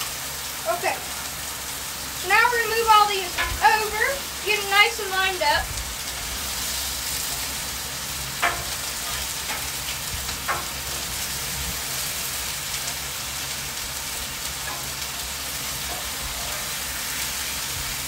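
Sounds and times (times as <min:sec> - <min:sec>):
food sizzling on a griddle: 0:00.0 - 0:18.0
metal spatula clicking on griddle: 0:08.4 - 0:11.1, 0:14.6 - 0:16.8.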